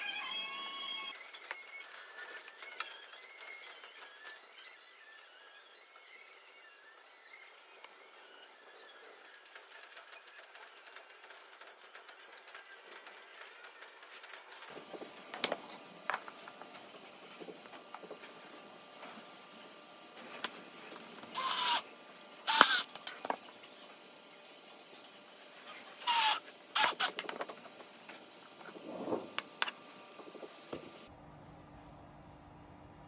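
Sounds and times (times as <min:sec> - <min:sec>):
cordless drill motor bursts: 0:21.3 - 0:21.8, 0:22.4 - 0:23.0, 0:26.0 - 0:27.2.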